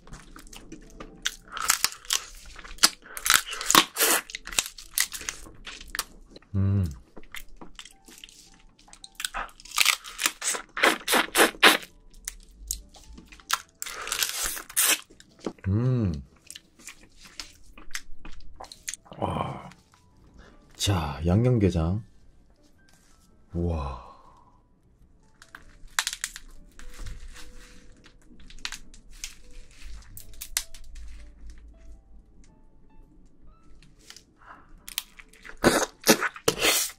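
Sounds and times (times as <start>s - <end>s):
crab shell crunching: 0.0s - 15.6s, 25.3s - 31.0s, 34.0s - 36.9s.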